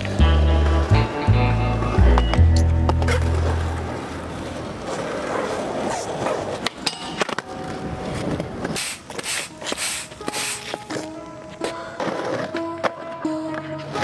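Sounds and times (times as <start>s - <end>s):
skateboard wheels rolling on concrete: 0.0s - 14.0s
skateboard clacks: 1.8s - 14.0s
hissing skateboard scrapes: 8.6s - 11.0s.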